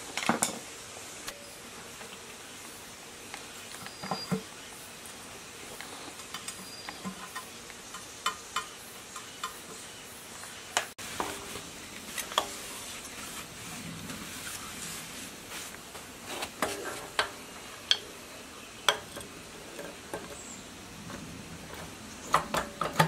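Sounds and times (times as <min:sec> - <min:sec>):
steady hiss: 0:00.0 - 0:23.0
small metal clicks and taps: 0:06.2 - 0:09.7, 0:22.2 - 0:23.0.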